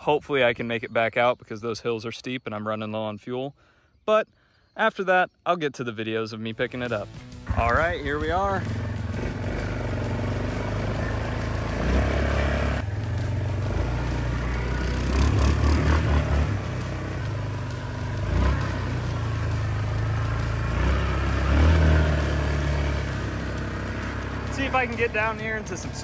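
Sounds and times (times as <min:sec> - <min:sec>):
quad bike engine revving: 0:07.4 - 0:26.0
water splashing around wheels: 0:07.5 - 0:26.0.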